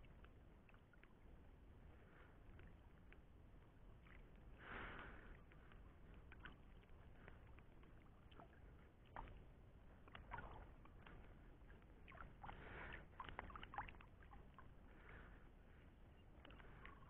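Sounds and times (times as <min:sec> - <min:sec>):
water splashing and lapping: 0:00.0 - 0:17.0.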